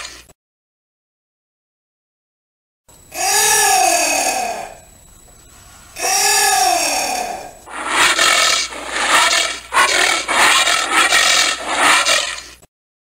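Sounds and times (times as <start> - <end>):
anteater calling: 7.6 - 12.5.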